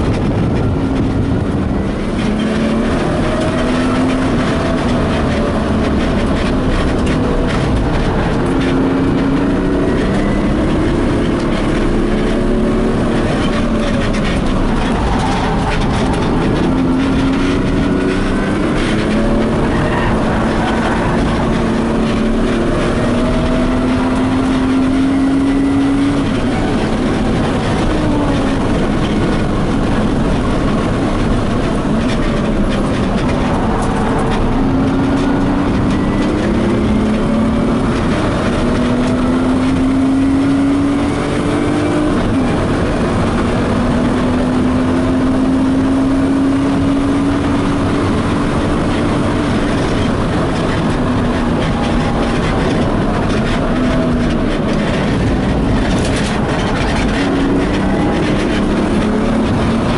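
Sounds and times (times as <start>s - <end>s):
car engine accelerating: 0.0s - 59.9s
wind and road noise: 0.0s - 59.9s.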